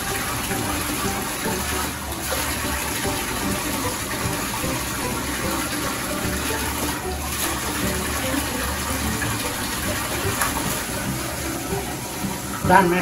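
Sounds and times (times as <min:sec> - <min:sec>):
water running in bathtub: 0:00.0 - 0:13.0.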